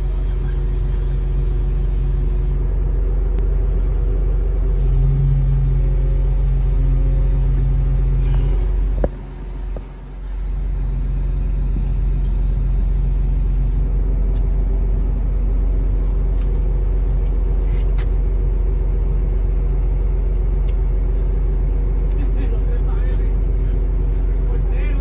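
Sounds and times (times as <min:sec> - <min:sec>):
diesel engine rumbling: 0:00.0 - 0:25.0.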